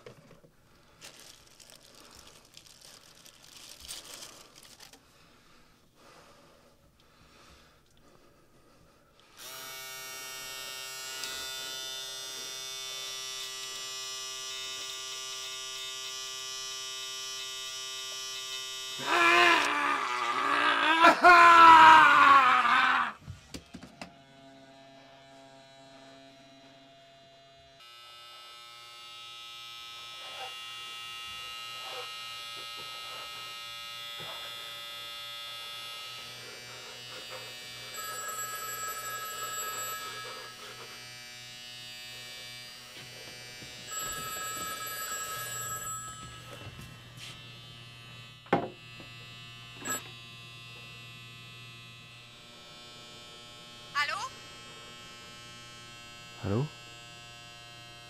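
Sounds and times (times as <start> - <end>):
desk telephone ringing: 37.9 - 40.8, 43.8 - 46.8, 49.8 - 50.1
low buzzing hum: 46.4 - 58.0.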